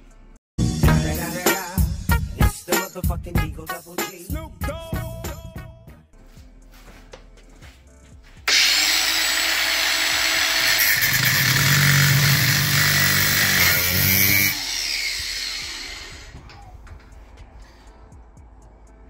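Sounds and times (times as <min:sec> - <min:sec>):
angle grinder grinding steel: 0:08.5 - 0:16.4.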